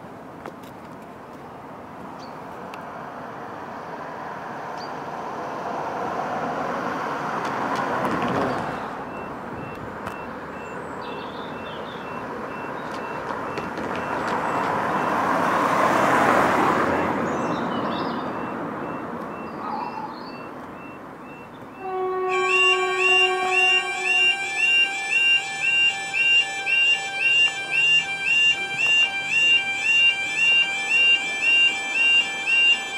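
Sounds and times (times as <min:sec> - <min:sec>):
cars passing: 0:00.0 - 0:32.9
level crossing alarm beeping: 0:09.0 - 0:10.8, 0:11.6 - 0:15.3, 0:20.4 - 0:32.9.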